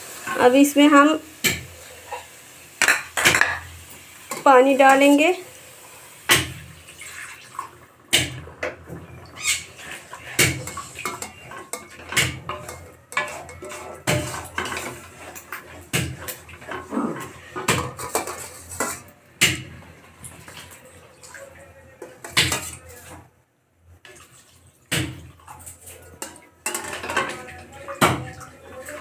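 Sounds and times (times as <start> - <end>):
wooden spatula scraping metal pan: 8.6 - 19.2, 22.0 - 23.3.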